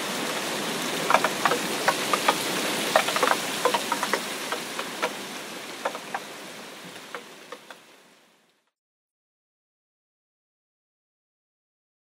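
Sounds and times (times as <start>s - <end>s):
rain on a puddle: 0.0s - 8.8s.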